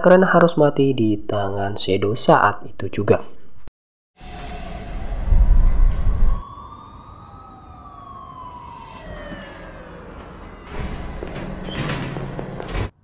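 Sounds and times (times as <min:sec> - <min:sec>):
siren wailing: 0:04.2 - 0:12.7
deep low rumble: 0:04.3 - 0:06.4.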